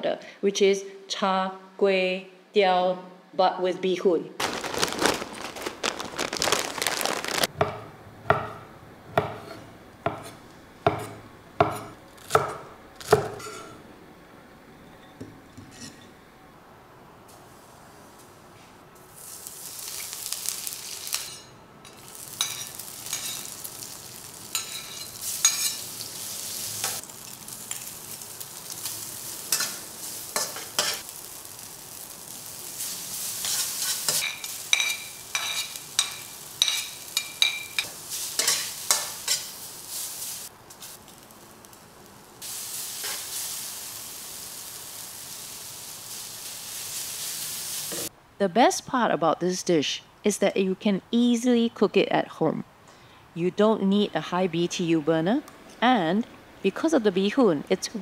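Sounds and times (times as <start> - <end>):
noodles sizzling in a wok: 4.4 - 7.5, 19.0 - 48.1
metal spatula scraping a pan: 13.4 - 13.8, 24.5 - 25.9.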